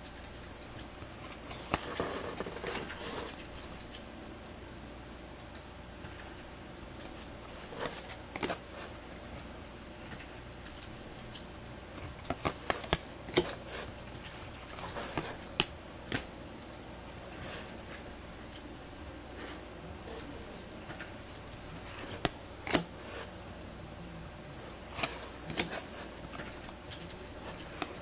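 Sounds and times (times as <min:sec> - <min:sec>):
cards flicking and tapping: 0:10.1 - 0:16.8.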